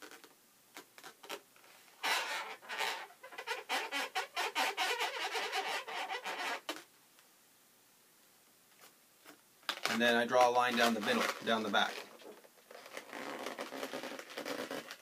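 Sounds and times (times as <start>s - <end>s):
marker squeaking on balloons: 0.0s - 1.4s, 2.0s - 6.9s, 9.8s - 15.0s.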